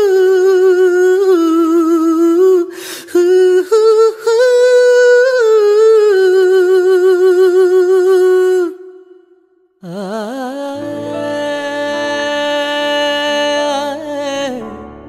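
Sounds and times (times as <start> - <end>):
person humming a melody: 9.8 - 14.9.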